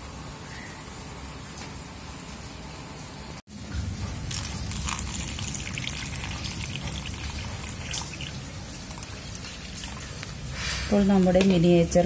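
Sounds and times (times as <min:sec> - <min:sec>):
water trickling and splashing: 0:03.5 - 0:12.0.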